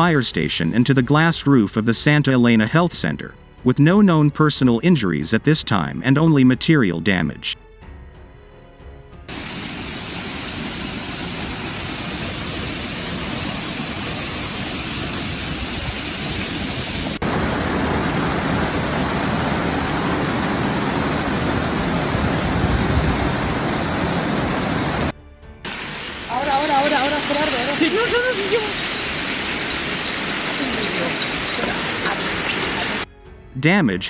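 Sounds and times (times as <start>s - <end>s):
hail hitting hard surfaces: 9.3s - 25.1s, 25.7s - 33.1s.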